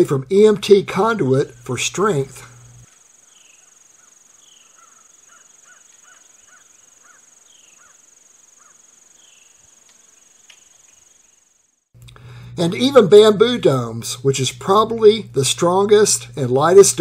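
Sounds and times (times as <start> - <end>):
insects buzzing: 0.0 - 17.0
birds calling: 1.5 - 11.5.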